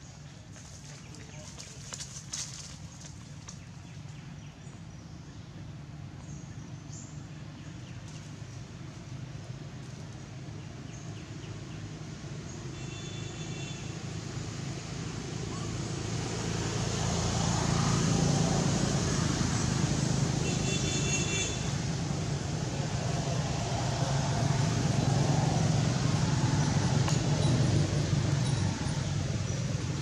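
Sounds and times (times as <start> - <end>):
vehicle engine running: 0.0 - 30.0.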